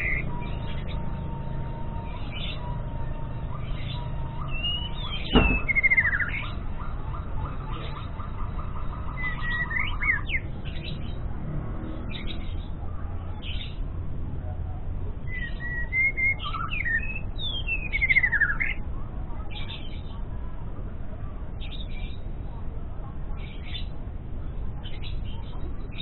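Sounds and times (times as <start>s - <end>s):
rapid rattling bird notes: 3.2s - 10.4s
bird whistles and chirps: 3.3s - 10.5s, 15.3s - 18.8s
sharp knock: 5.2s - 5.9s.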